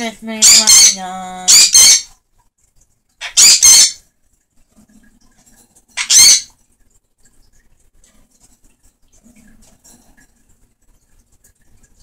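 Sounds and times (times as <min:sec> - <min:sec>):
parrot squawking: 0:00.4 - 0:02.1, 0:03.2 - 0:04.0, 0:06.0 - 0:06.5.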